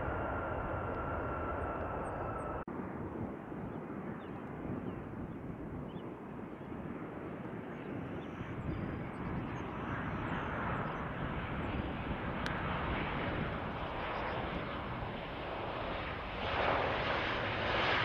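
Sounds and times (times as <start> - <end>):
jet engines rushing: 0.0 - 2.7.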